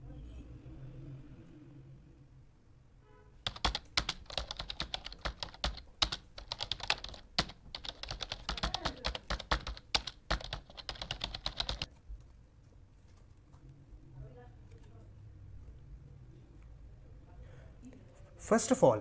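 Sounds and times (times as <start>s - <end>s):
computer keyboard typing: 3.4s - 12.0s.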